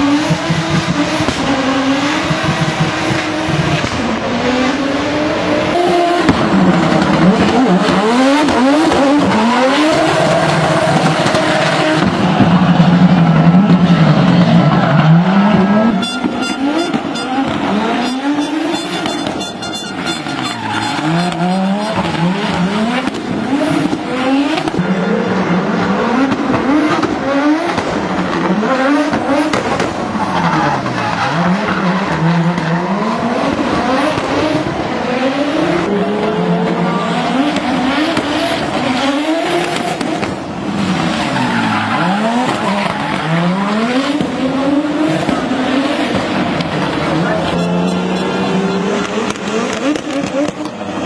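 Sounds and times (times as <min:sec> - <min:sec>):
rally car engine revving hard: 0:00.0 - 0:51.0
tyre squeal: 0:16.0 - 0:22.3.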